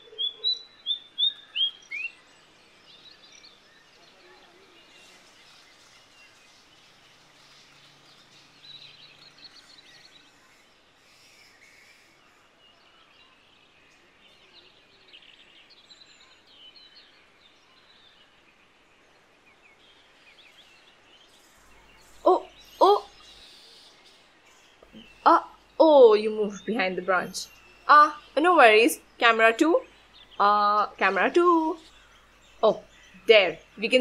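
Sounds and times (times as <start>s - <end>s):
faint bird chirps: 0.0s - 34.0s
low hiss: 0.7s - 14.3s.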